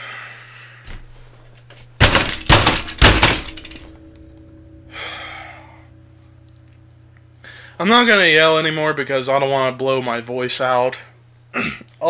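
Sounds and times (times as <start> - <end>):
fist pounding a desk: 2.0 - 3.8.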